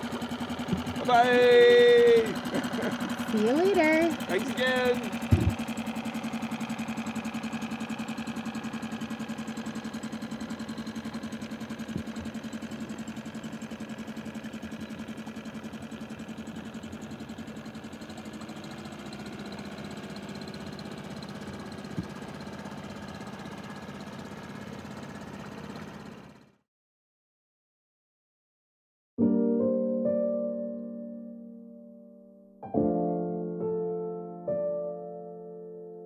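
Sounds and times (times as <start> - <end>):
outboard motor running: 0.0 - 26.6
brief knocks: 5.3 - 5.7.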